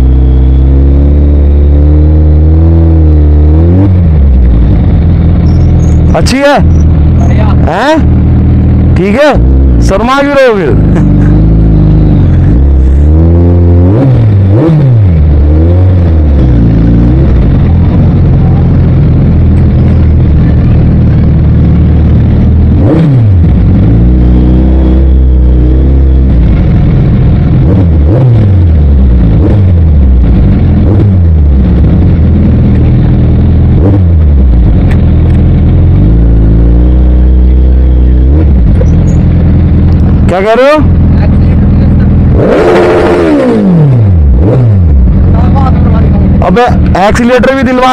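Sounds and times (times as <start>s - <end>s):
motorcycle engine revving: 0.0s - 47.9s.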